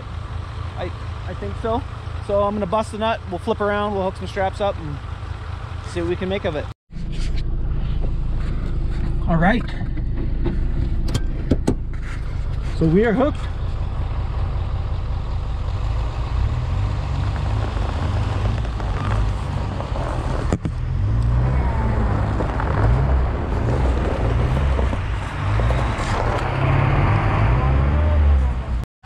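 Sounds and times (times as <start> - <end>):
engine revving under load: 15.7 - 28.8.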